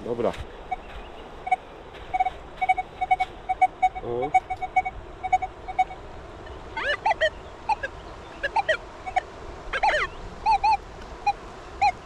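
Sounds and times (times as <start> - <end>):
metal detector beeping: 0.7 - 6.0, 6.8 - 9.2, 9.8 - 10.8
arching animal calls: 0.7 - 12.0.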